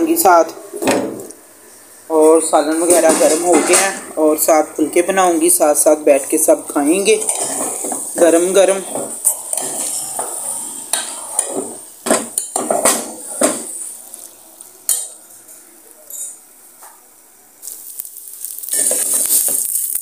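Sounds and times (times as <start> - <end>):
food sizzling: 0.0 - 20.0
metal spatula scraping pot: 6.4 - 13.8.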